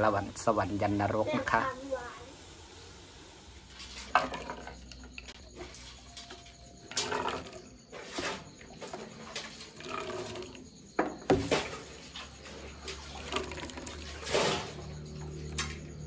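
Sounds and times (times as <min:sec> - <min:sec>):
sauce pouring and splashing: 0:11.3 - 0:15.8.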